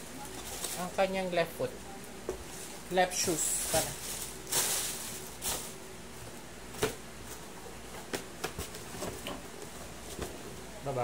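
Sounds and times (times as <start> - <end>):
tissue paper rustling: 3.3 - 5.8.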